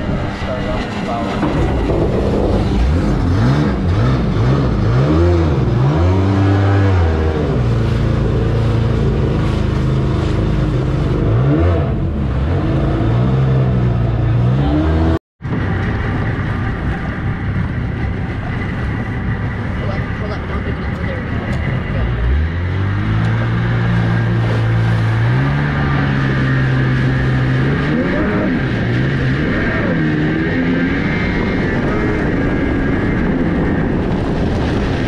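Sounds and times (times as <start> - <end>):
boat engine revving: 0.0 - 35.0.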